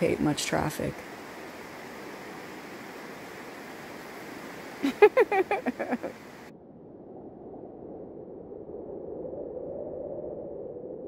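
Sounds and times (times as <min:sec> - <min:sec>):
river rushing: 0:00.0 - 0:06.5.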